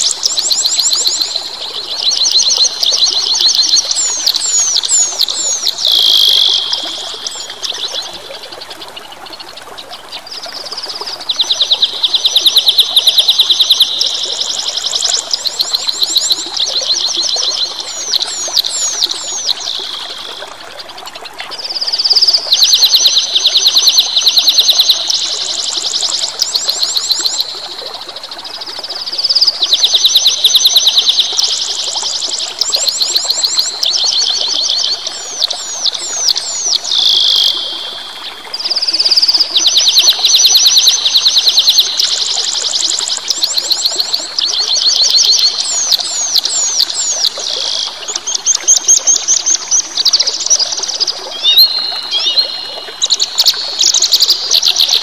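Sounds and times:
flowing water rushing: 0.0 - 55.0
songbird trilling: 2.1 - 7.4, 51.3 - 52.6.

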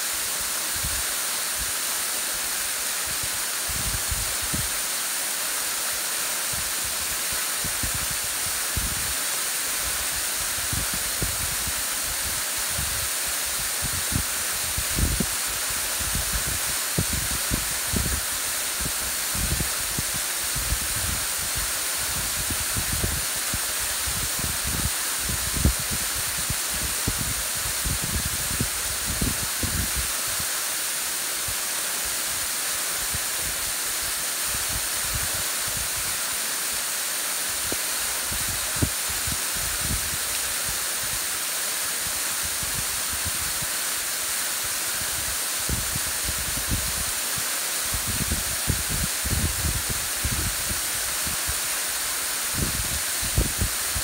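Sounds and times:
waterfall splashing into pool: 0.0 - 54.0
wind buffeting microphone: 24.1 - 30.0, 48.0 - 51.4, 52.5 - 53.8.

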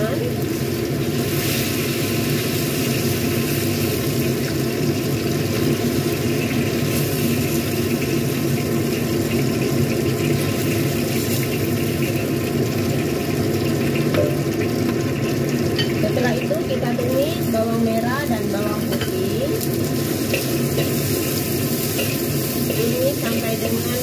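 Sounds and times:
oil sizzling in a wok: 0.0 - 24.0
metal spatula scooping: 18.8 - 23.8.

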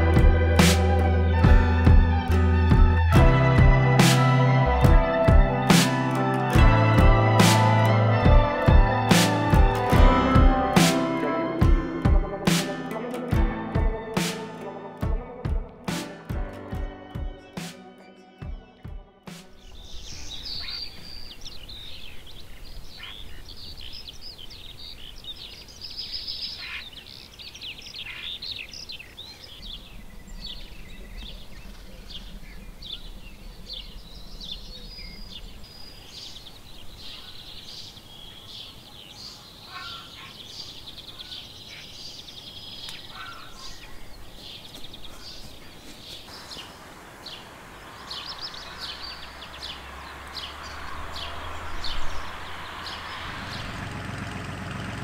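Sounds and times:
small birds chirping: 18.4 - 54.5
low outdoor rumble: 46.8 - 55.0.

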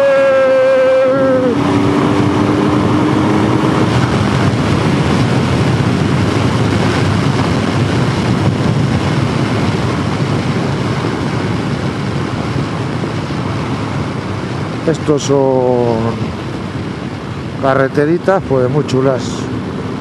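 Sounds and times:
motorcycle engine: 0.0 - 15.0
wind rushing: 0.0 - 20.0.

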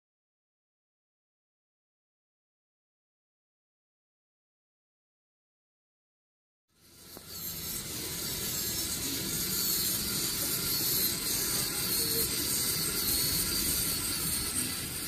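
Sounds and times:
faint high whine: 6.8 - 15.0
model locomotive running on track: 6.8 - 15.0.

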